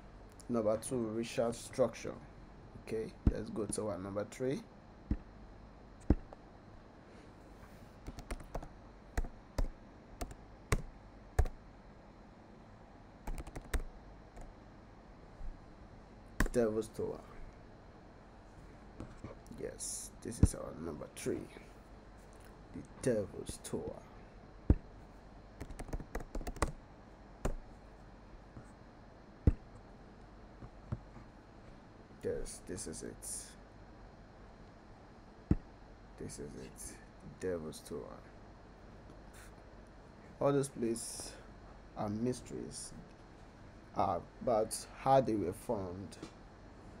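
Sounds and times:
computer keyboard keystrokes: 8.0 - 11.6, 13.2 - 14.5, 25.6 - 26.8.

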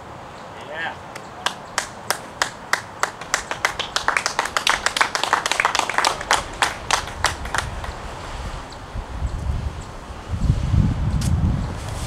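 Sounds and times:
spectators clapping: 1.1 - 8.1.

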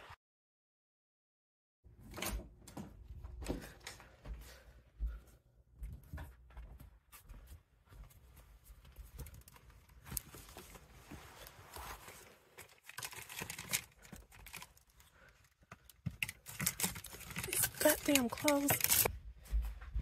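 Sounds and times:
clothes on hangers rustling: 5.9 - 20.0.

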